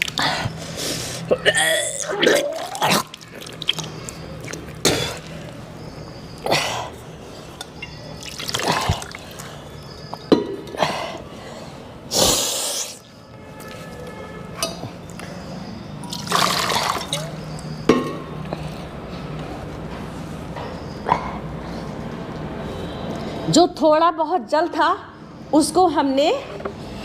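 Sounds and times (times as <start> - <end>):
water splashing into plastic basin: 8.2 - 9.6.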